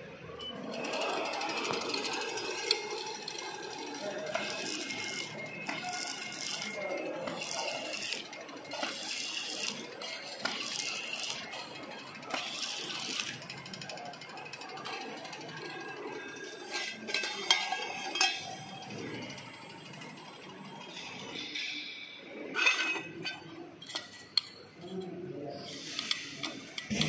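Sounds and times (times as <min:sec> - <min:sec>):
labeling machine running: 0:00.8 - 0:15.5, 0:26.7 - 0:27.0.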